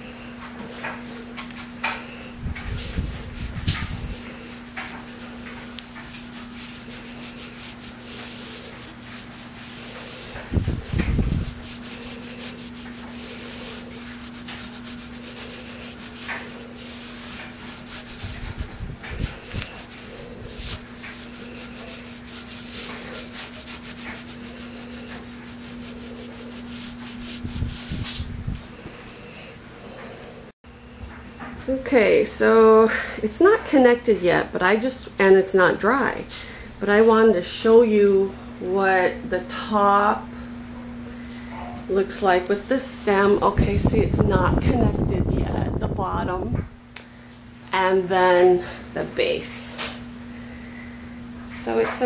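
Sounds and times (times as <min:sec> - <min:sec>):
low steady hum: 0:02.2 - 0:30.5
towel scrubbing over tiles: 0:02.5 - 0:28.3.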